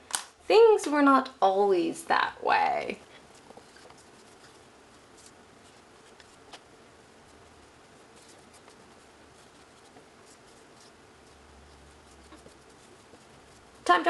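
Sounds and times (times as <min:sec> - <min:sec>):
low steady hiss: 0:00.0 - 0:14.0.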